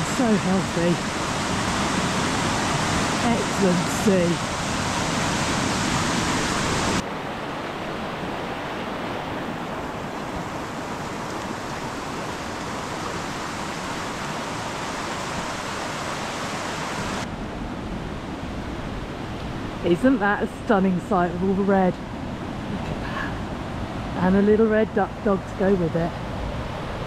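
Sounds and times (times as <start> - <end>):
river rushing: 0.0 - 20.7.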